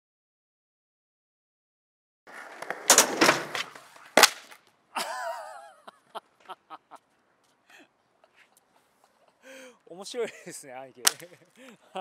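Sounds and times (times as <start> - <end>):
skateboard cracking on ground: 2.3 - 4.8
skateboard wheels rolling on concrete: 2.3 - 5.5.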